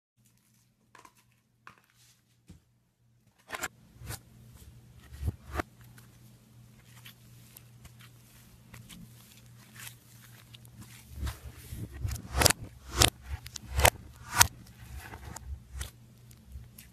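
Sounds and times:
steady low hum: 3.7 - 6.7, 7.5 - 16.9.

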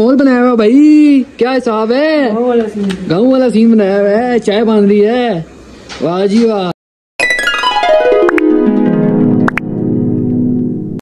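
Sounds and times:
falling run of notes and chord: 7.2 - 11.0.

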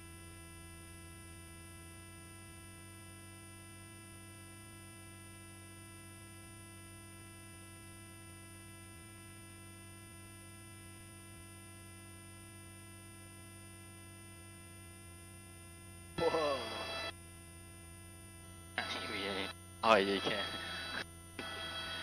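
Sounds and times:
faint steady hum: 11.3 - 22.0.

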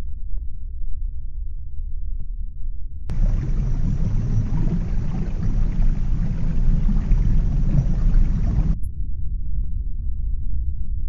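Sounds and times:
deep rumble: 0.3 - 11.0
underwater rushing hiss: 3.1 - 8.8.

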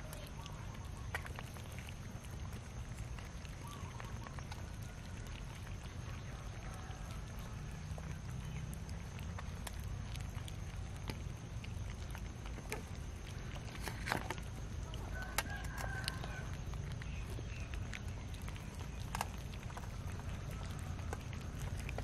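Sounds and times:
cats chewing from metal tray: 0.0 - 22.0
steady low rumble: 16.0 - 22.0.

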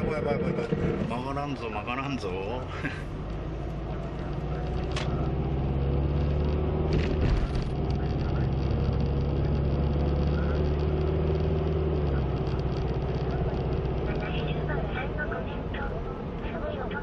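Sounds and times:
car engine drone: 0.0 - 17.0
tyre and road noise: 0.0 - 17.0
thump: 6.9 - 7.7.

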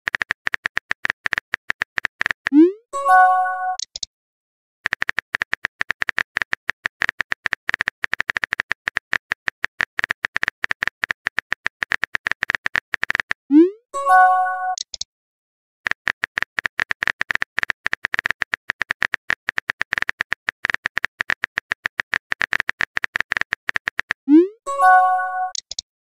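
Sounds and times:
rapid keyboard tap clicks: 0.1 - 2.5, 4.8 - 13.4, 15.9 - 24.2.

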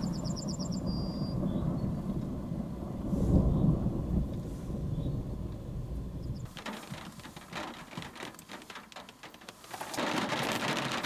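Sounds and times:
distant thunder rumbling: 0.0 - 8.8.

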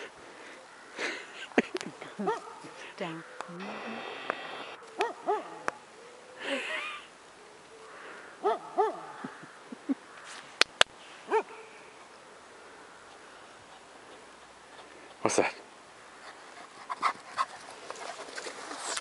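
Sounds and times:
dog barking: 2.2 - 2.8, 5.0 - 5.7, 8.4 - 9.2, 11.3 - 11.6.

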